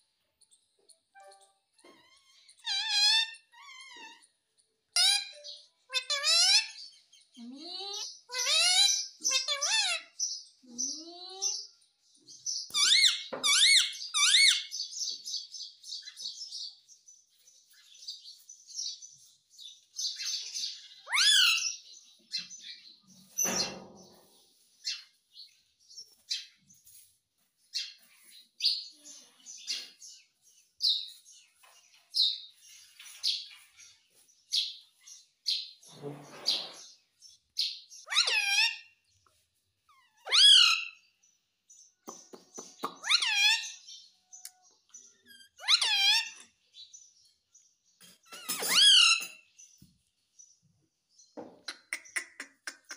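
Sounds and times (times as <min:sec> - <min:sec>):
parakeet shrill calls: 0:01.2 - 0:04.3, 0:05.0 - 0:07.0, 0:07.9 - 0:10.3, 0:12.7 - 0:14.9, 0:20.1 - 0:21.8, 0:38.0 - 0:38.9, 0:39.9 - 0:41.1, 0:42.8 - 0:44.0, 0:45.3 - 0:46.4, 0:48.3 - 0:49.4
parakeet chirping: 0:12.7 - 0:15.1, 0:37.6 - 0:38.8, 0:39.9 - 0:41.1, 0:42.6 - 0:44.6, 0:45.2 - 0:46.5.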